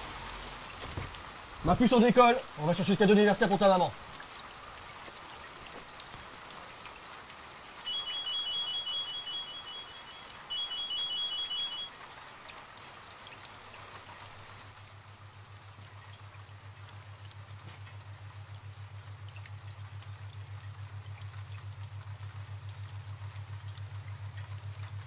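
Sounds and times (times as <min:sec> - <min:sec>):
steady hiss: 0:00.0 - 0:06.8
rapid high-pitched electronic beeping: 0:07.9 - 0:11.9
low pulsing hum: 0:14.7 - 0:25.0.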